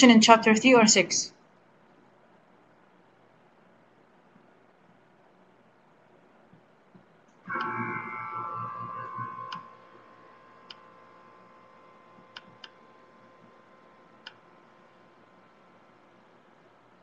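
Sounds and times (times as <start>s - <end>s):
steady ringing tones: 7.5s - 16.0s.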